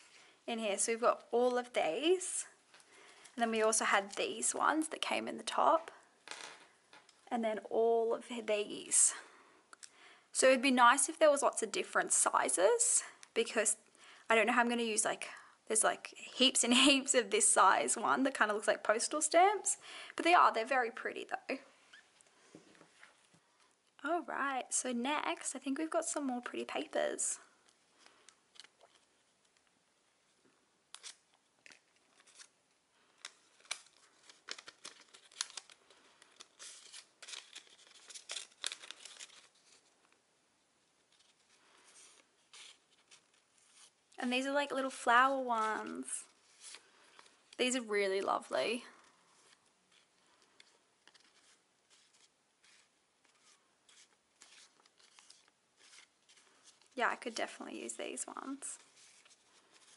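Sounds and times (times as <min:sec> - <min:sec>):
paper cards shuffled: 0:27.6 - 0:29.8, 0:30.9 - 0:40.2, 0:41.0 - 0:48.3, 0:49.3 - 0:57.6, 0:58.4 - 0:59.9
paper crinkling and rustling: 0:27.6 - 0:29.8, 0:30.9 - 0:40.2, 0:41.0 - 0:44.2, 0:44.8 - 0:48.3, 0:49.0 - 0:57.6, 0:58.4 - 0:59.9.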